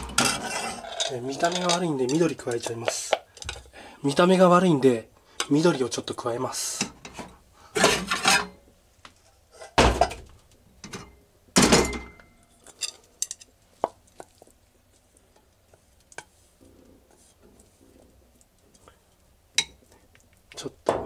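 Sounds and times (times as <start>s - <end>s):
ladle and pot clattering: 0.0s - 3.6s.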